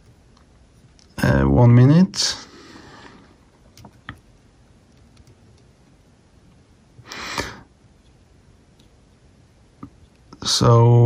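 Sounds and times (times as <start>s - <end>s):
breathy nasal exhale: 2.4s - 3.4s, 7.0s - 7.7s.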